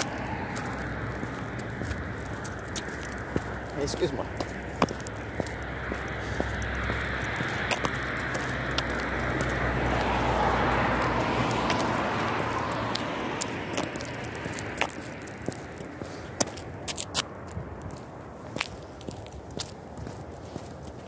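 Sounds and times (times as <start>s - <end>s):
footsteps on road: 0.0s - 21.0s
vehicle passing on road: 0.0s - 21.0s.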